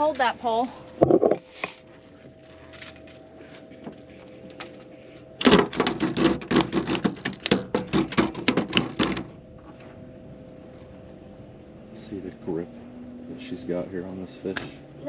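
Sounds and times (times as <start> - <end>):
faint steady hum: 0.0 - 15.0
rapid knocks and rattles: 5.4 - 9.3.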